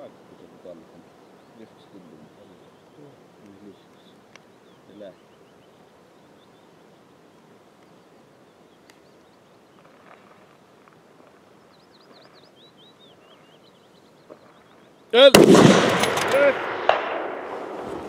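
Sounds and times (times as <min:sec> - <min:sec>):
bird chirping: 0:00.0 - 0:15.3
faint click: 0:03.4 - 0:04.5, 0:08.8 - 0:09.1.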